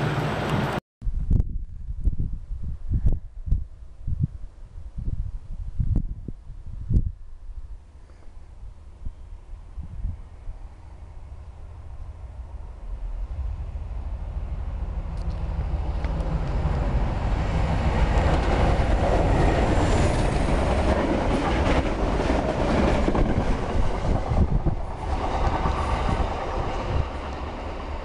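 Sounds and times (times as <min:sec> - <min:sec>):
diesel locomotive engine droning: 0:00.0 - 0:00.8, 0:08.5 - 0:28.0
distant train: 0:00.0 - 0:00.8, 0:07.3 - 0:28.0.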